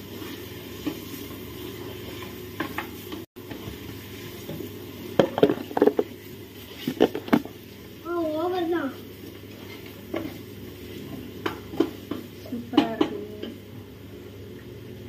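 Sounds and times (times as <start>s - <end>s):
wooden spoon scraping metal pot: 5.4s - 7.5s.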